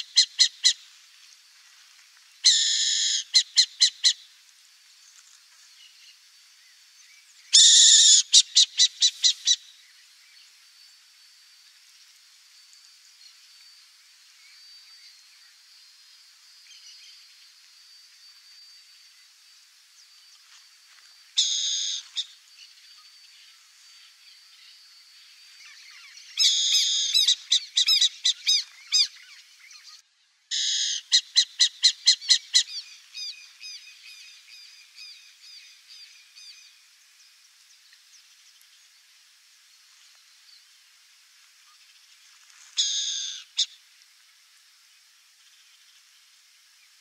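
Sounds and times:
faint high whine: 9.6 - 26.9
bird calls and chirping: 21.4 - 36.8, 41.6 - 43.8.

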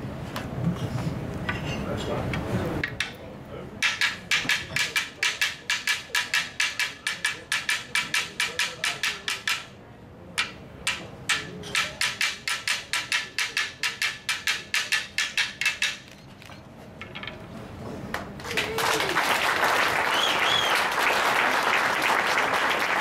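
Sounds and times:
wooden sticks knocking in rhythm: 2.8 - 3.2, 3.8 - 16.1.

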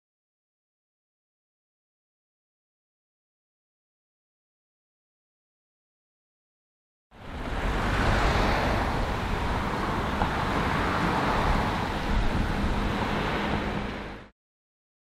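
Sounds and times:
road traffic rumble: 7.1 - 14.3.

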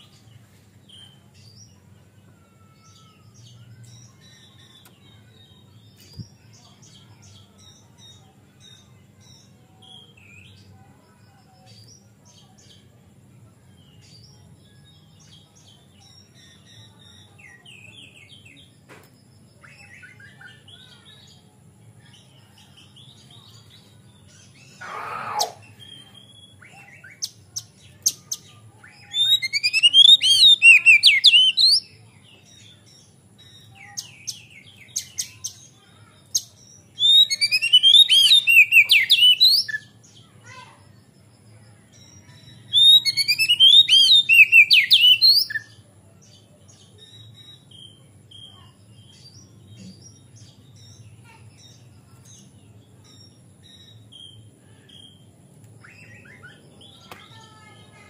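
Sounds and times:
magpie-robin singing: 24.3 - 40.7, 41.9 - 45.8, 55.8 - 58.0
short sharp bird calls: 24.8 - 25.7.

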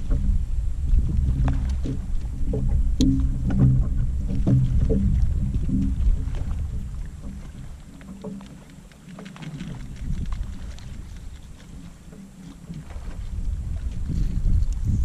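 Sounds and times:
wind rumble on microphone: 0.0 - 8.7, 9.4 - 15.0
water lapping against hull: 0.0 - 15.0
faint ticks: 7.0 - 13.2.

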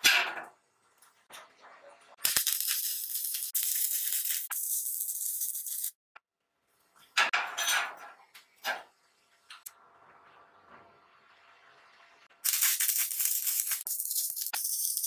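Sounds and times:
electric arc welding crackle: 2.2 - 6.0, 12.4 - 15.0.

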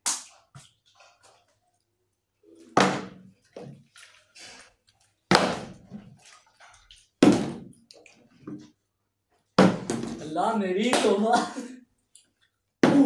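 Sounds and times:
water sloshing in bottle: 2.5 - 8.8
water bottle thudding on wooden table: 7.2 - 7.7, 9.6 - 10.2.

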